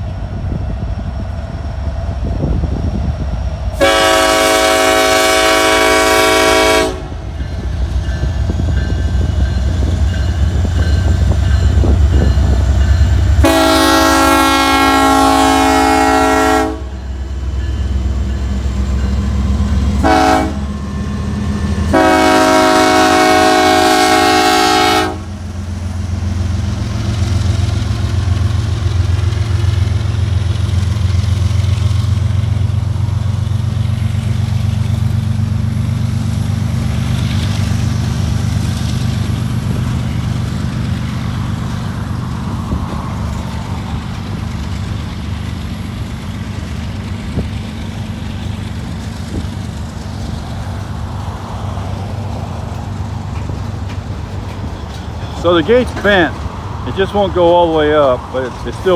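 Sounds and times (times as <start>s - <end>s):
locomotive air horn blasts: 3.8s - 7.2s, 13.4s - 17.0s, 20.0s - 20.7s, 21.9s - 25.4s
train cars clattering on rails: 7.2s - 15.4s, 26.6s - 58.9s.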